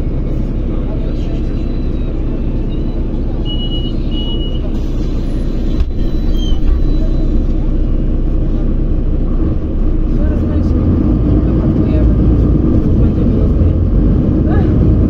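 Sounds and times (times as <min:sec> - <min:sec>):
vehicle road and engine rumble: 0:00.0 - 0:15.0
short high beeps: 0:02.7 - 0:04.7.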